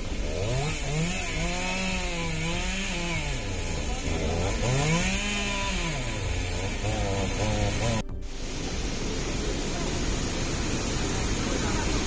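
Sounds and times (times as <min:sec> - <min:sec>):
small engine revving: 0:00.0 - 0:08.3
mountain stream rushing: 0:03.2 - 0:12.0.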